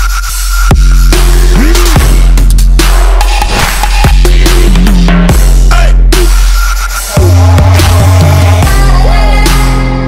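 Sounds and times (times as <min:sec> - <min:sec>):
electronic music with heavy bass: 0:00.0 - 0:10.0.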